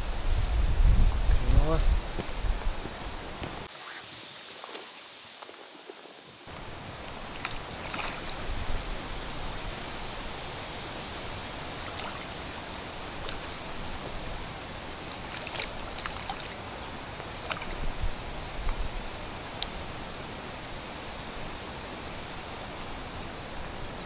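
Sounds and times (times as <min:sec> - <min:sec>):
wind buffeting microphone: 0:00.0 - 0:03.7, 0:05.3 - 0:20.0
breeze rushing over lake: 0:00.0 - 0:24.0
water lapping at shore: 0:03.6 - 0:18.8.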